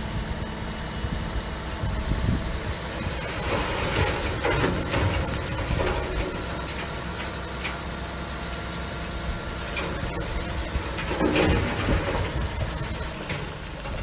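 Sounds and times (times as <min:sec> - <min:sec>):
diesel truck engine running: 0:00.0 - 0:14.0
rock spilling out: 0:10.0 - 0:14.0.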